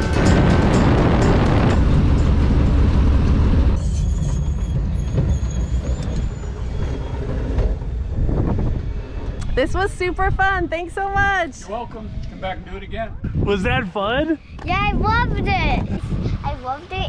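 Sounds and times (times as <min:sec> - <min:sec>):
biplane engine and propeller: 0:00.0 - 0:10.9.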